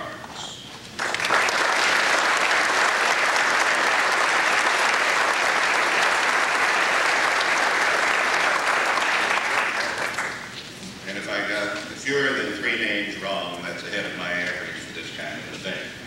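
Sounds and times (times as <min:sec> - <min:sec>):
large audience applauding: 0:01.0 - 0:10.5.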